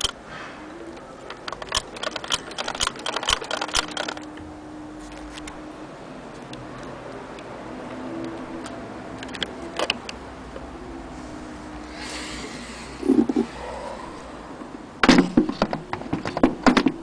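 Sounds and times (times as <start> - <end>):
sewing machine mechanism ticking: 1.5 - 4.3.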